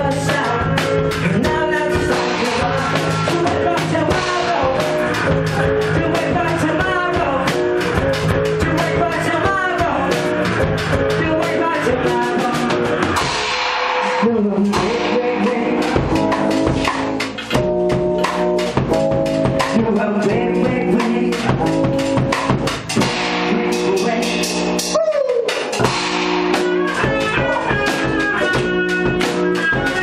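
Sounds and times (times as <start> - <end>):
drum kit beat with cymbals: 0.0 - 30.0
electric guitars chording: 1.1 - 19.7, 25.6 - 30.0
guitar slide: 25.4 - 30.0.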